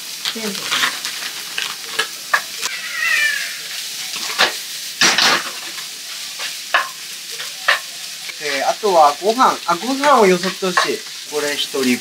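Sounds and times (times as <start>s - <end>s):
food sizzling in a frying pan: 0.0s - 12.0s
high falling squeal: 2.7s - 3.7s
utensil clanking on pan: 6.4s - 7.9s, 9.7s - 11.2s
spatula scraping a pan: 9.7s - 11.3s.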